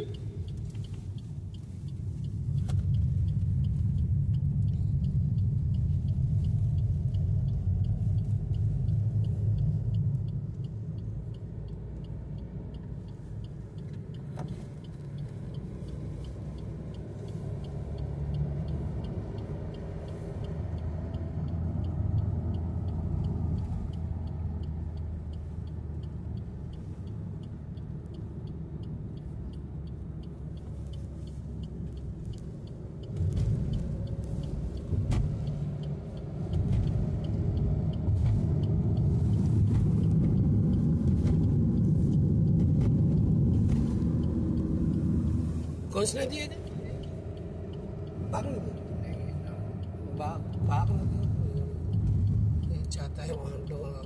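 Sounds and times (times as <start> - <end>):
car engine and road rumble: 0.0 - 54.0
faint high ticking: 43.2 - 54.0.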